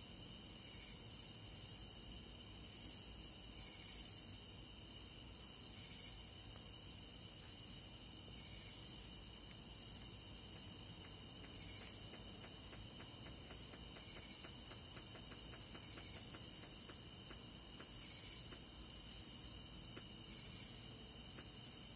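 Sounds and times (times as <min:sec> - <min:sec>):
night insects trilling: 0:00.0 - 0:21.9
quick regular ticking: 0:10.5 - 0:18.6.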